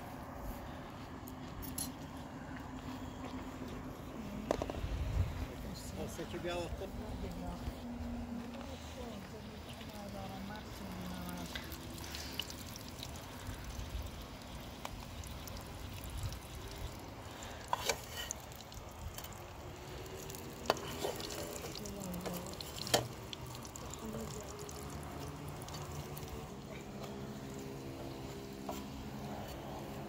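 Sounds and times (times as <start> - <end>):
pastries sizzling in oil: 8.9 - 30.0.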